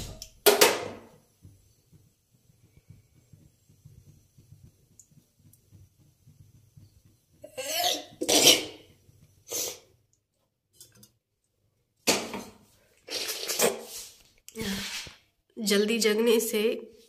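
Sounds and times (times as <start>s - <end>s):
woman sneezing and coughing: 7.6s - 8.8s.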